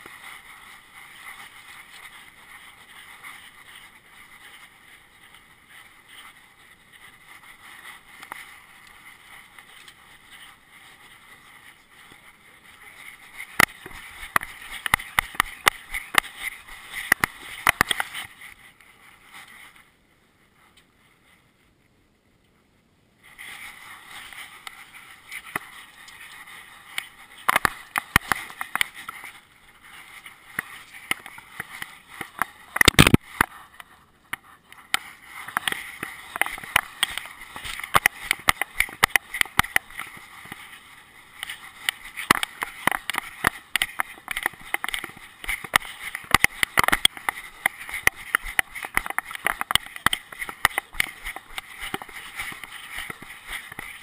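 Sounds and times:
camera housing rubbing and clicking: 13.2s - 18.5s, 26.9s - 29.4s, 30.2s - 40.8s, 41.4s - 54.0s.

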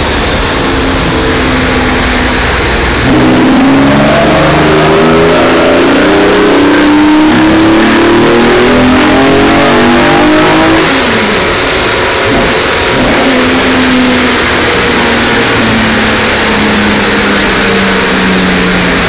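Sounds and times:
race car engine revving: 0.0s - 19.0s.

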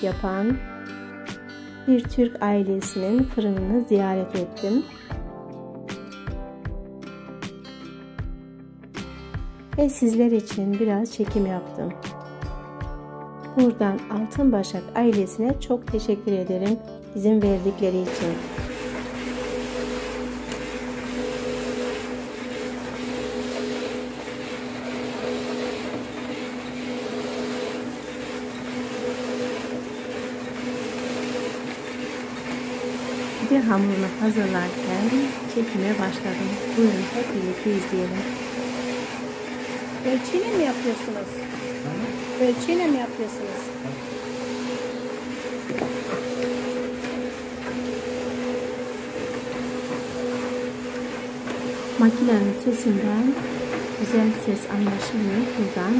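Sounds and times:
machine motor humming and whirring: 17.4s - 55.9s.

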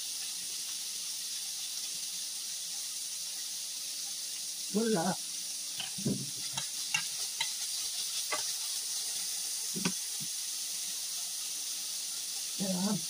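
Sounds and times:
vegetables sizzling in a frying pan: 0.0s - 13.0s
utensil scraping a pan: 5.8s - 9.0s.

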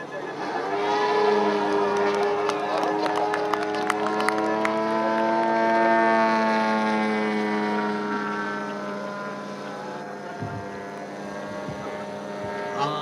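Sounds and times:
model plane engine buzzing: 0.0s - 13.0s.

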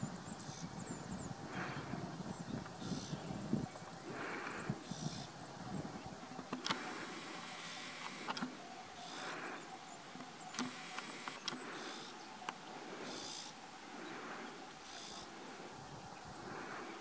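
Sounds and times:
outdoor background hiss: 0.0s - 17.0s
sharp clicks: 6.4s - 8.6s, 10.2s - 11.8s.

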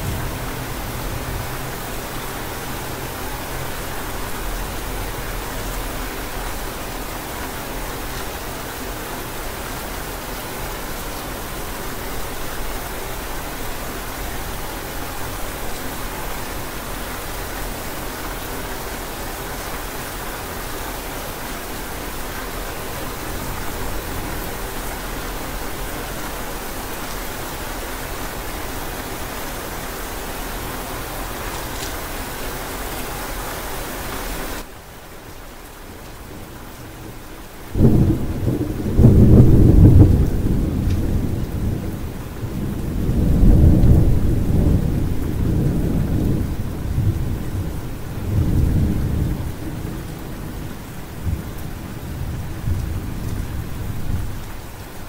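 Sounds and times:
thunder rumbling: 0.0s - 6.5s, 37.7s - 54.5s
steady rain hiss: 0.0s - 55.0s.

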